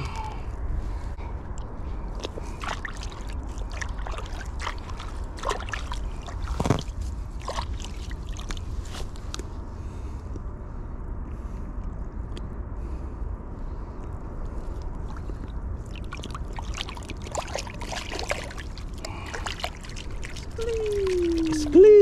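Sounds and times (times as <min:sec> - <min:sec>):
steady low rumble: 0:00.0 - 0:22.0
water splashing around fish: 0:02.3 - 0:08.8, 0:15.0 - 0:22.0.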